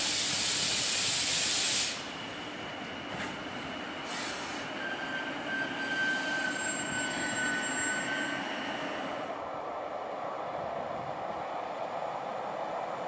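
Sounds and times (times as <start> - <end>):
train rumble: 0.0 - 13.0
train wheels squealing: 0.1 - 9.2.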